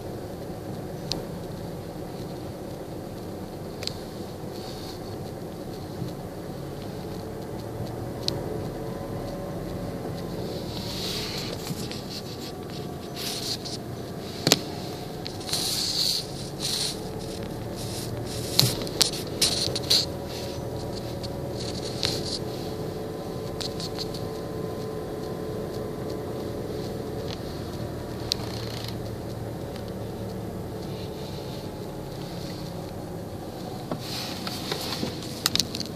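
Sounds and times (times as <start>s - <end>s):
car engine and road hum: 0.0s - 35.9s
short scraping crackles: 9.7s - 24.5s, 26.8s - 35.9s.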